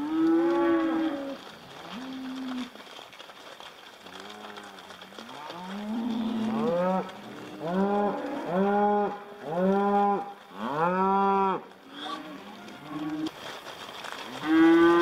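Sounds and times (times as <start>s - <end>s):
cow mooing: 5.3s - 13.2s, 14.4s - 15.0s.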